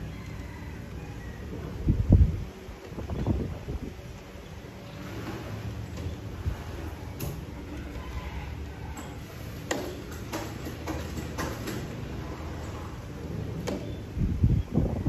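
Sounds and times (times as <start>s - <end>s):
wind rumble on microphone: 0.0s - 4.4s, 12.8s - 15.0s
low wind buffet: 0.0s - 9.6s, 11.6s - 15.0s.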